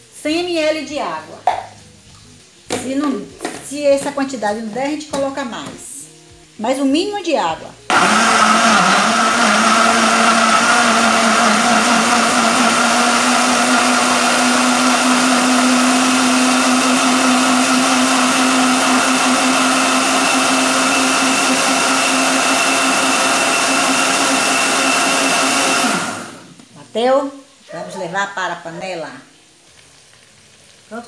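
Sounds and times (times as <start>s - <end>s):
blender running: 7.9s - 26.6s.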